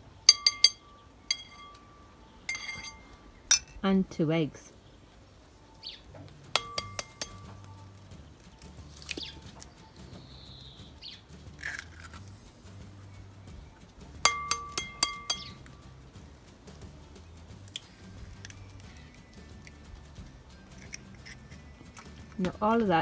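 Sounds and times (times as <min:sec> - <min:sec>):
faint birds chirping: 0:00.0 - 0:23.0
egg clinking on glass bowl: 0:00.3 - 0:01.9, 0:02.5 - 0:03.8, 0:06.6 - 0:07.7, 0:14.3 - 0:15.7.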